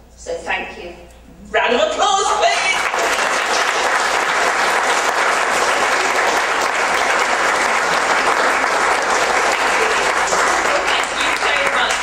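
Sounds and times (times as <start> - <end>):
audience applauding: 2.4 - 12.0.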